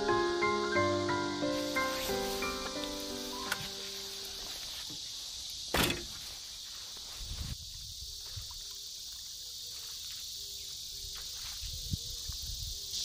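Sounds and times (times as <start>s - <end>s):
steady high hiss: 0.0s - 8.2s
van door slamming: 5.7s - 6.2s.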